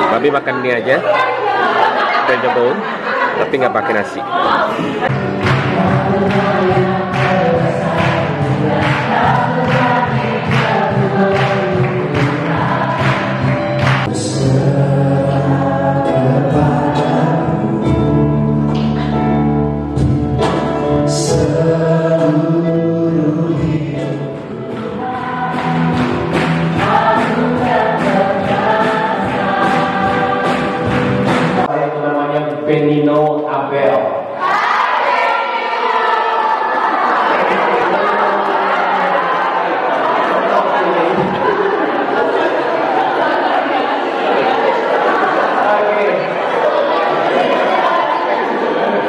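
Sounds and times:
choir singing worship song: 0:00.0 - 0:31.7, 0:34.3 - 0:49.0
keyboard: 0:00.0 - 0:34.4.

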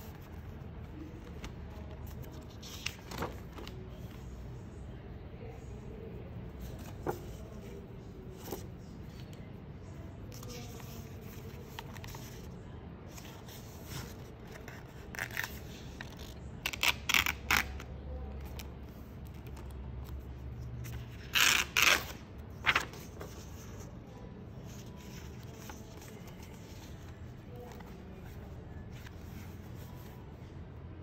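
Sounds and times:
notebook pages rustling: 0:00.0 - 0:04.3, 0:06.5 - 0:09.3, 0:22.0 - 0:23.9.

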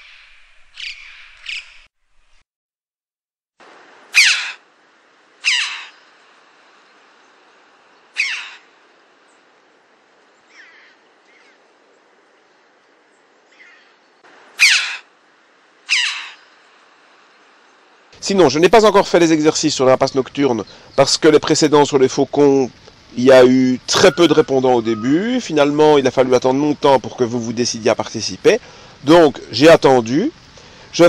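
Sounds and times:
bird flight calls sliding downward: 0:04.1 - 0:04.6, 0:05.4 - 0:06.1, 0:08.0 - 0:08.7, 0:14.5 - 0:15.1, 0:15.8 - 0:16.6.

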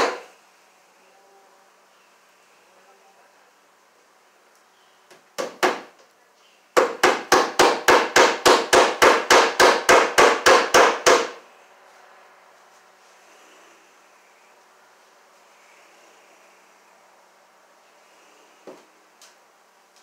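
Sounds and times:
hammer blows on wooden boards: 0:00.0 - 0:00.3, 0:05.1 - 0:05.9, 0:06.8 - 0:11.4.

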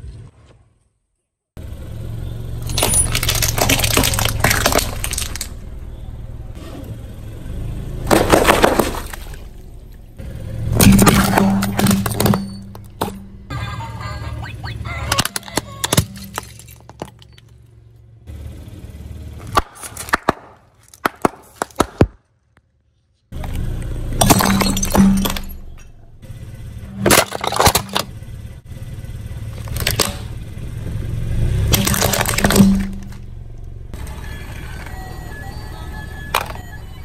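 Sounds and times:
tyre crushing plastic: 0:02.7 - 0:05.6, 0:31.7 - 0:33.2.

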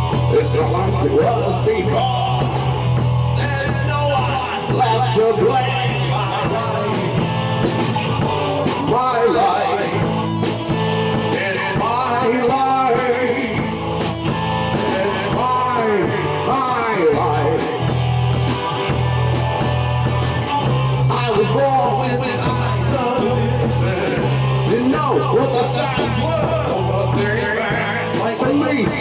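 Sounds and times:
drum kit: 0:00.0 - 0:29.0
electric bass: 0:00.0 - 0:29.0
electric guitar: 0:00.0 - 0:29.0.

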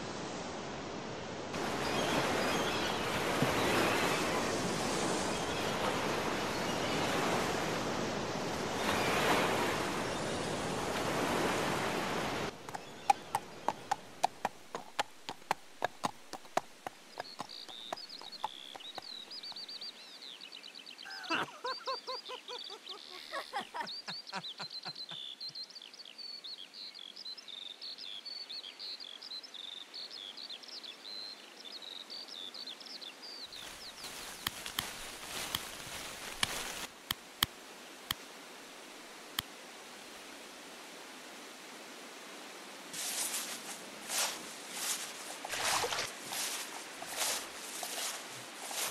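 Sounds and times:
surf-like rush: 0:00.0 - 0:19.8, 0:42.9 - 0:48.9
birdsong chirping: 0:12.5 - 0:36.8.

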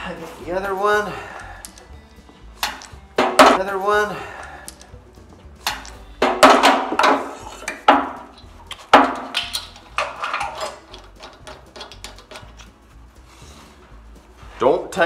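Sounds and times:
metal fittings clinking: 0:01.4 - 0:01.9, 0:02.6 - 0:03.6, 0:04.4 - 0:05.0, 0:05.6 - 0:12.8.

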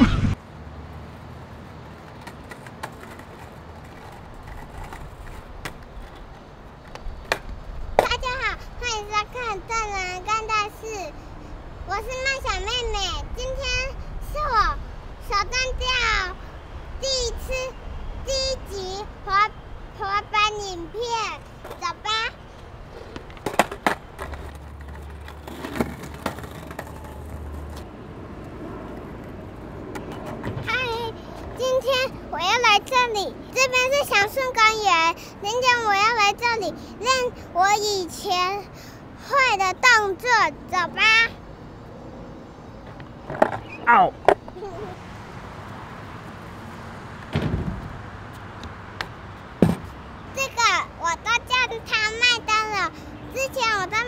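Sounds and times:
skateboard wheels rolling on paving: 0:00.0 - 0:38.7, 0:42.6 - 0:54.0
skateboard wheels rolling on bricks: 0:01.3 - 0:08.5, 0:21.4 - 0:31.1, 0:42.8 - 0:44.9
skateboard sharp clicks: 0:02.0 - 0:08.1, 0:23.0 - 0:27.9, 0:42.9 - 0:44.6.

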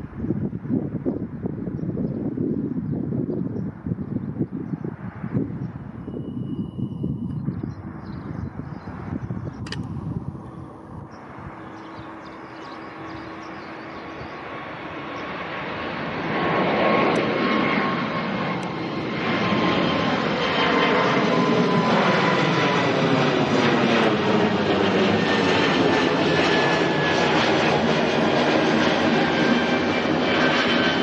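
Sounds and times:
jet engines roaring overhead: 0:00.0 - 0:31.0
whining fan tone: 0:05.3 - 0:23.2.

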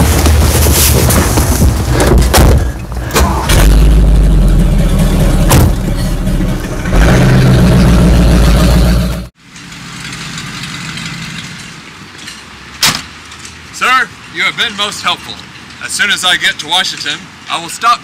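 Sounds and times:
truck engine deep rumble: 0:00.0 - 0:12.7.

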